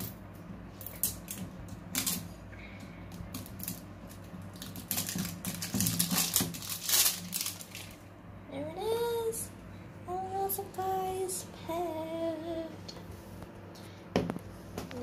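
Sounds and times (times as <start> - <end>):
plastic wrapper crinkling and tearing: 0.8 - 2.2, 3.3 - 8.0.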